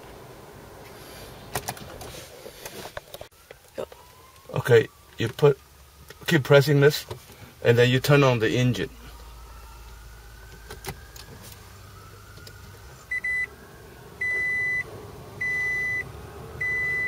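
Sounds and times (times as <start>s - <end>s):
faint rising whine: 0.0s - 17.0s
dashboard chime beeping: 15.4s - 16.0s, 16.6s - 17.0s.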